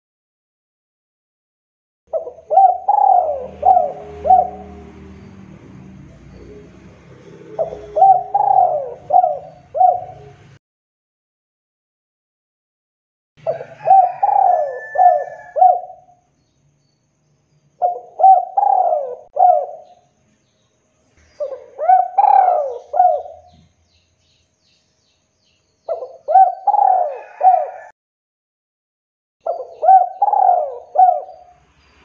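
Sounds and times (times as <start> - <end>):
dove cooing: 2.1 - 5.3, 6.1 - 10.6, 13.4 - 16.2, 17.8 - 20.0, 21.4 - 23.7, 25.9 - 27.9, 29.4 - 31.6.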